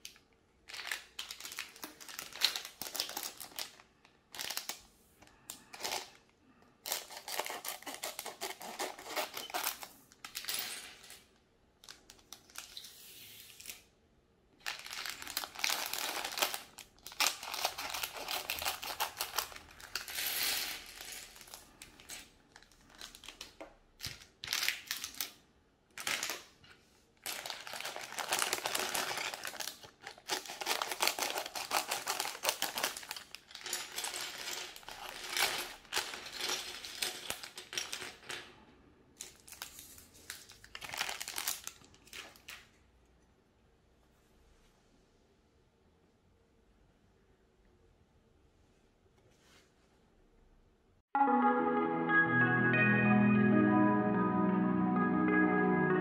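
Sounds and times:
plastic bags crinkling: 0.0 - 4.8, 5.6 - 12.8, 14.6 - 25.4, 27.2 - 38.4, 39.2 - 42.7
scissors cutting plastic: 6.9 - 9.9, 27.4 - 34.0
plastic bricks clattering on table: 14.6 - 25.4, 27.2 - 38.5.

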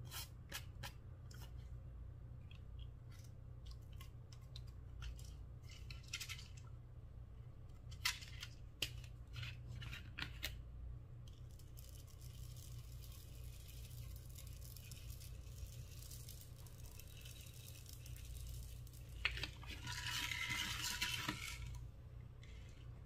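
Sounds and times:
foam beads rattling in bottle: 11.3 - 21.8.

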